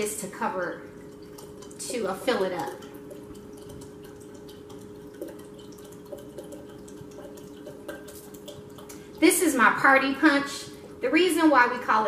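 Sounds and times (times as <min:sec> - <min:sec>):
small drips: 0:00.0 - 0:11.6
faint hum: 0:00.0 - 0:12.0
soda being poured and fizzing: 0:00.9 - 0:09.8.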